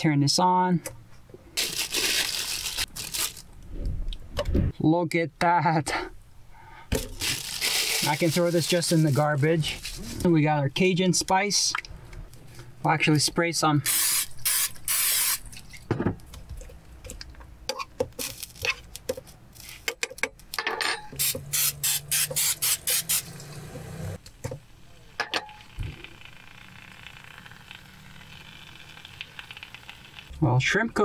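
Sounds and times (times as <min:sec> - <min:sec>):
aerosol spray hissing: 0:21.2 - 0:23.4
frying pan sizzling: 0:25.4 - 0:30.3.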